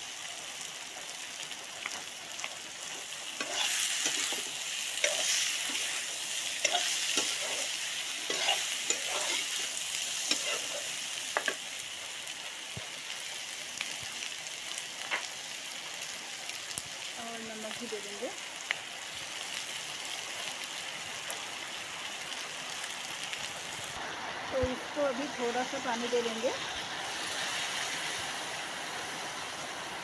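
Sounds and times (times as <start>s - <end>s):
curry sizzling in a pan: 0.0s - 30.0s
metal spatula scraping a pan: 3.4s - 11.5s.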